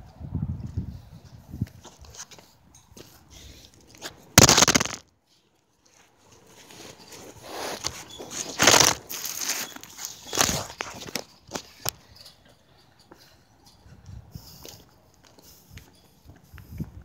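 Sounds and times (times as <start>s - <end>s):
crunching footsteps: 4.0s - 5.0s, 7.5s - 11.8s
camera handling rustling: 4.4s - 5.0s, 7.8s - 11.7s
loud scraping: 4.4s - 5.0s.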